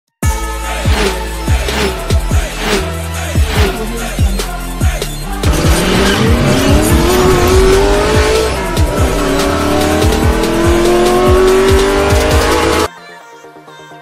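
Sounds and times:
music with steady drum beat: 0.2s - 12.9s
car engine accelerating: 0.9s - 3.9s, 5.3s - 12.9s.

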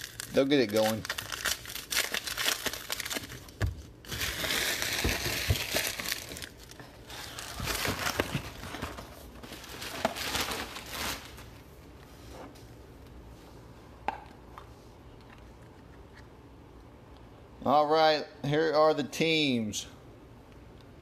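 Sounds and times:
foil wrappers crinkling: 0.0s - 11.6s.

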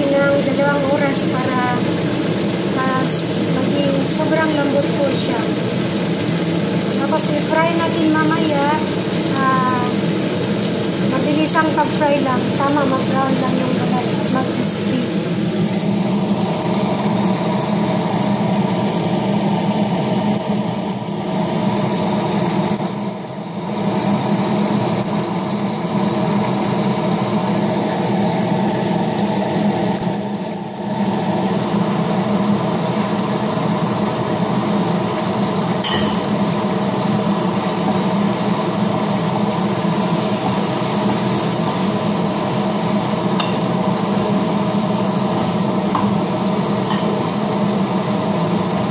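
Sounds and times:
extractor fan humming: 0.0s - 48.9s.

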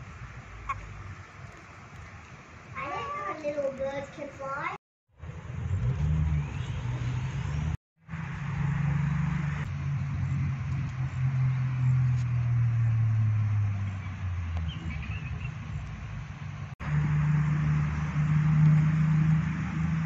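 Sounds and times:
vehicle engine hum: 5.2s - 20.0s.

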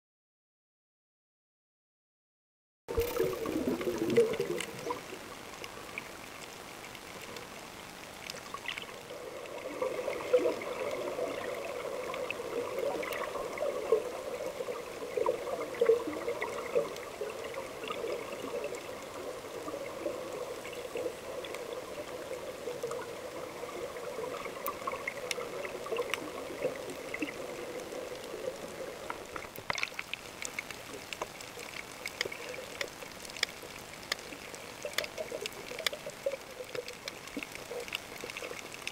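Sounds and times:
underwater watery rushing: 2.9s - 38.9s
small clicks: 29.0s - 38.9s.

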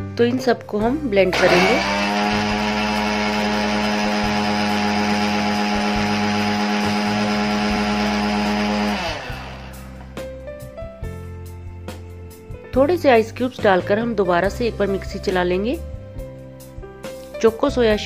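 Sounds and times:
mixer grinder motor whining: 1.3s - 10.2s.

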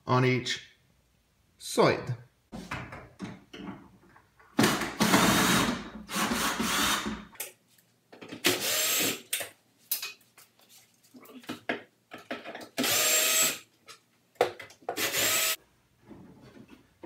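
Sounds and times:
cordless drill running: 8.6s - 9.2s, 12.8s - 13.6s, 15.0s - 15.6s.

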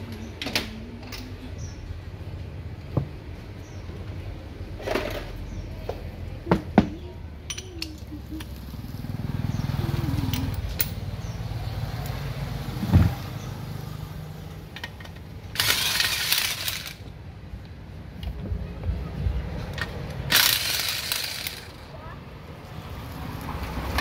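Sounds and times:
tools knocking and clattering: 6.5s - 8.0s
thud: 12.8s - 13.2s.

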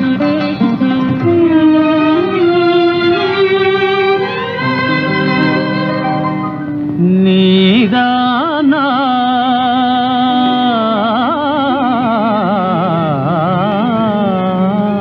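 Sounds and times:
soft instrumental backing: 0.0s - 9.2s
singer holding ornamented notes: 0.0s - 15.0s.

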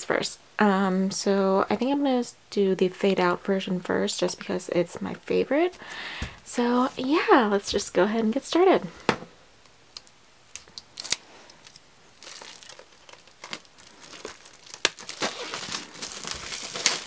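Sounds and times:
plastic wrap tearing and crinkling: 10.5s - 17.0s.

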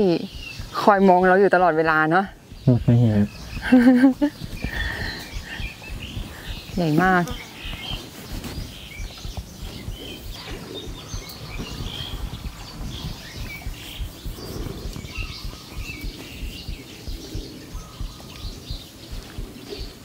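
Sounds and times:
small birds chirping: 0.0s - 20.0s
low irregular rumble: 0.5s - 20.0s.

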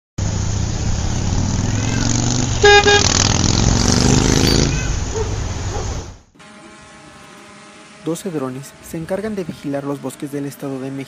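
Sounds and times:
vehicle engine rumble: 0.2s - 6.3s
car horn honking: 2.6s - 3.3s.

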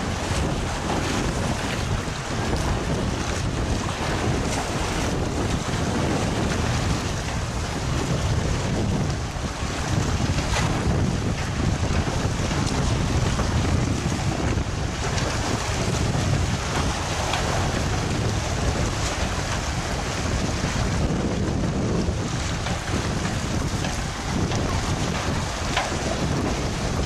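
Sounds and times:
choppy sea water: 0.0s - 27.0s
wind rumbling on microphone: 0.0s - 27.0s.

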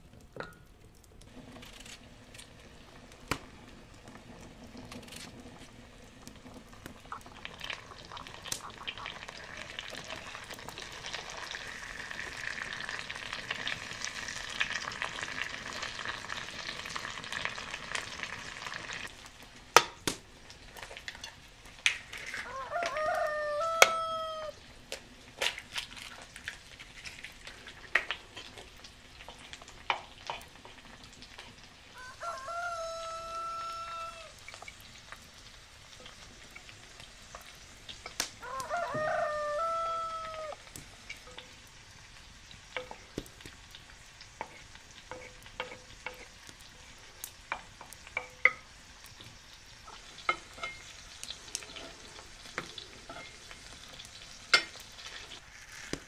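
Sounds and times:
potatoes sizzling in a pan: 0.0s - 56.0s
chicken calling: 22.4s - 24.6s, 32.0s - 34.4s, 38.4s - 40.7s.

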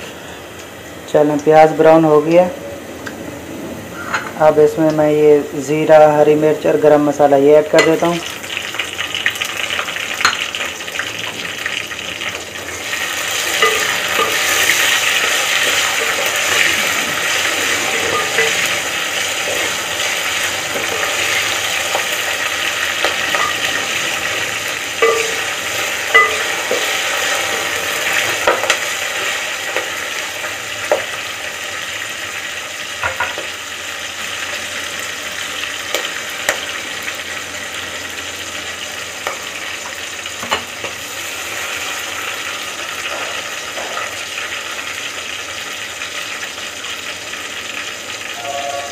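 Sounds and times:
spices sizzling in hot oil: 7.4s - 48.9s
spoon scraping a pot: 13.5s - 18.8s.

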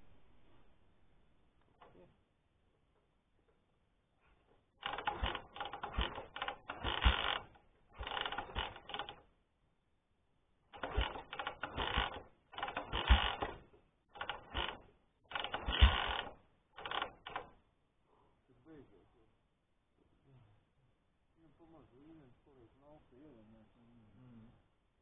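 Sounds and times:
motorcycle engine kick-start clattering: 4.8s - 9.2s, 10.7s - 17.6s.

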